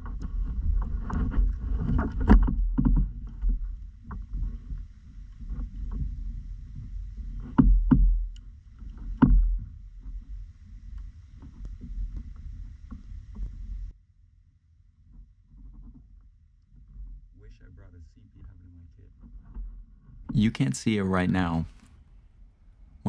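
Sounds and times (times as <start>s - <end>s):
clicks and knocks against hull: 0.0s - 13.8s.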